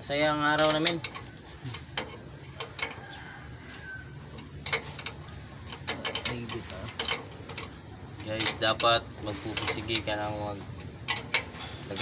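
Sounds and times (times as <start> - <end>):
spanners clinking on metal nuts: 0.3 - 3.1, 4.4 - 10.4, 11.1 - 12.0.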